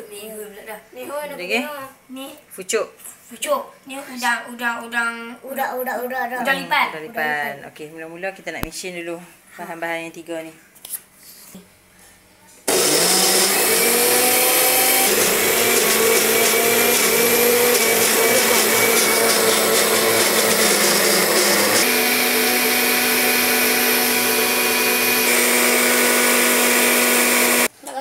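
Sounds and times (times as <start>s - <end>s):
blender motor grinding: 12.7s - 27.7s.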